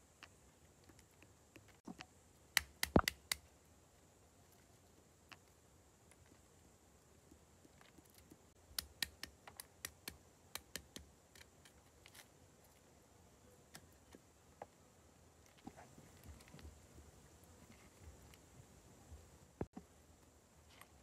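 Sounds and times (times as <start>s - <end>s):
stick cracking nut shells on stone: 2.6s - 3.4s, 8.7s - 11.8s.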